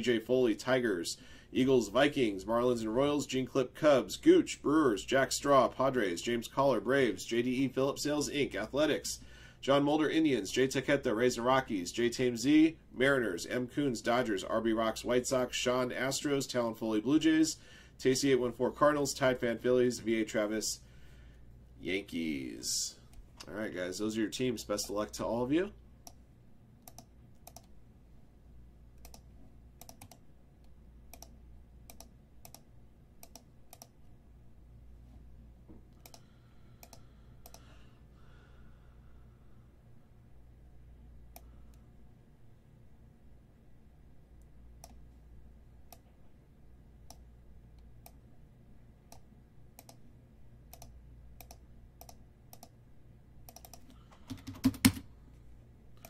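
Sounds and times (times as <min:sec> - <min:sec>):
low steady hum: 0:00.0 - 0:56.0
computer mouse clicks: 0:26.8 - 0:27.8, 0:29.0 - 0:34.0, 0:35.9 - 0:37.7, 0:44.4 - 0:45.0, 0:49.1 - 0:50.0, 0:50.7 - 0:52.8, 0:53.5 - 0:55.0
keyboard keystrokes: 0:53.5 - 0:55.0.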